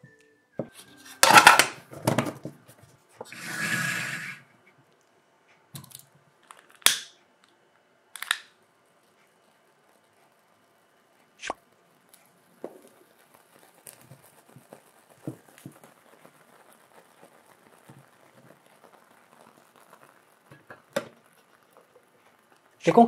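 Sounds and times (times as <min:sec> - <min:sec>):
fuel tablet crackling and popping: 0:04.7 - 0:23.0.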